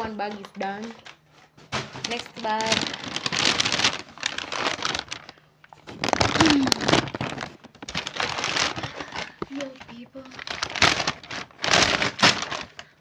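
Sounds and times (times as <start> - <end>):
paper bag rustling and crinkling: 0.0 - 13.0.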